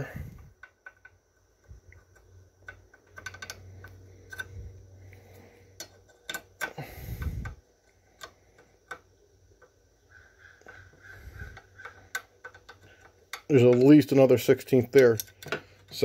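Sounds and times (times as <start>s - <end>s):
metal lever rod clicking and knocking: 11.5s - 16.0s.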